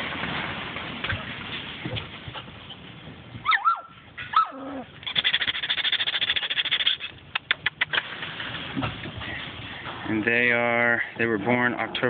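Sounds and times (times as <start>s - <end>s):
puppies yelping and whining: 3.4s - 7.2s.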